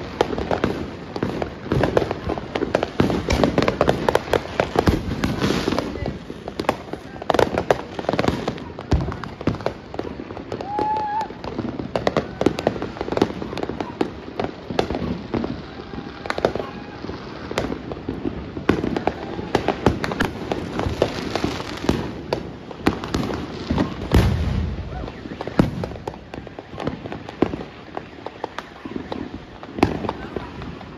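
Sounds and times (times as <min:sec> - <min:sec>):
fireworks bangs pops and crackles: 0:00.0 - 0:30.9
heavy deep firework boom: 0:17.5 - 0:27.6.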